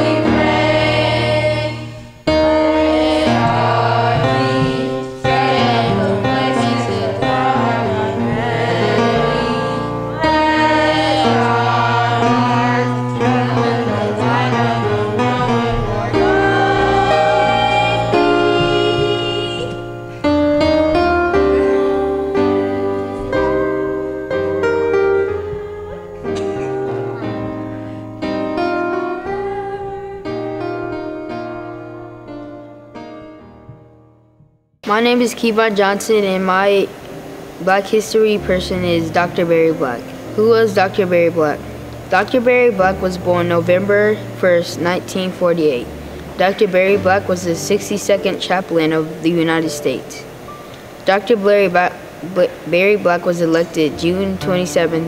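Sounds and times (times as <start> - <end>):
children's choir singing: 0.0 - 32.3
piano accompaniment: 0.0 - 55.0.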